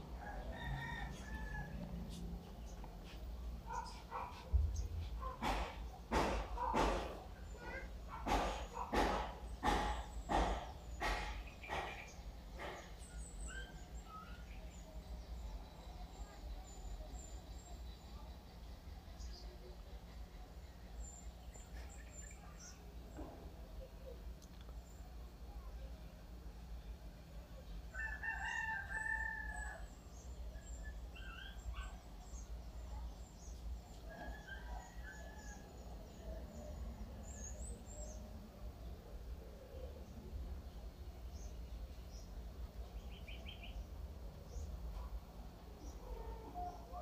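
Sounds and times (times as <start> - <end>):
rooster crowing faintly: 0.0 - 2.5, 33.8 - 36.8.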